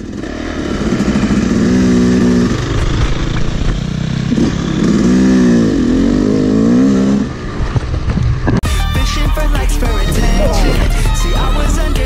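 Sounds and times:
dirt bike engine revving: 0.0 - 8.6, 9.6 - 12.0.

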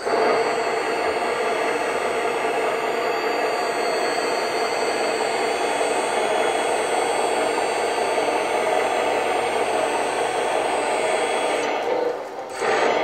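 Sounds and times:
electric hydraulic pump whining: 0.0 - 13.0.

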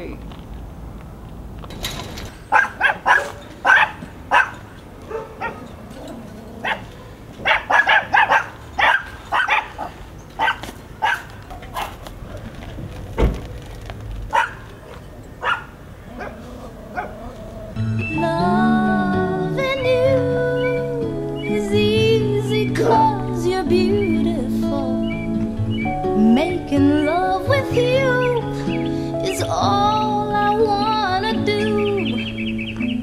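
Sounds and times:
dog barking: 2.5 - 5.7, 6.6 - 12.0, 14.3 - 16.4, 17.0 - 17.2.

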